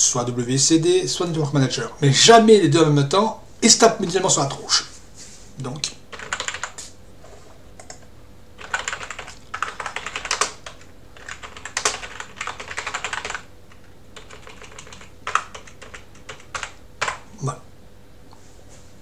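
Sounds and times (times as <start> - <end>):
typing on computer keyboard: 6.1 - 6.8, 8.6 - 17.2.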